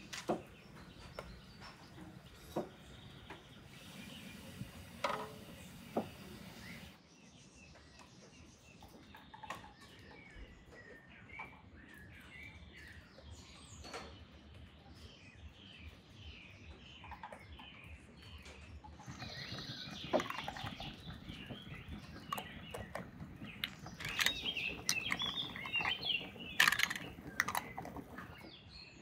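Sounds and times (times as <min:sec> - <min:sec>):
small birds chirping: 0:00.0 - 0:29.0
steady hiss: 0:02.3 - 0:07.0
glass bottles clinking: 0:19.1 - 0:28.4.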